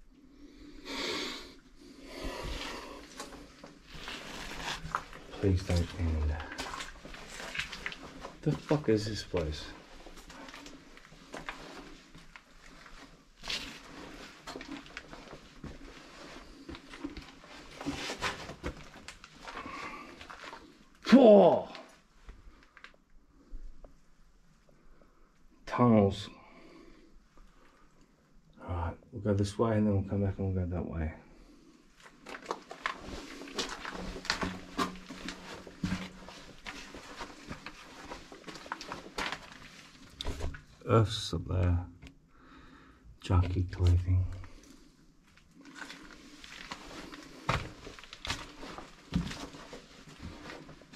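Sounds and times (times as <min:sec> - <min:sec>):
scrapes: 0:02.2 - 0:08.7, 0:32.2 - 0:40.5
footsteps crunching on rubble: 0:03.2 - 0:20.7, 0:32.0 - 0:40.7, 0:45.2 - 0:50.9
footsteps on gritty floor: 0:32.2 - 0:40.5, 0:45.6 - 0:50.9.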